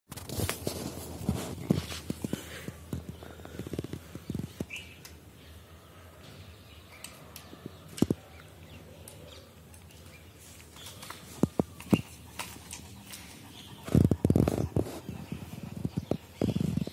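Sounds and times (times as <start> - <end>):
brush raking through dog fur: 0.1 - 2.3, 10.4 - 16.8.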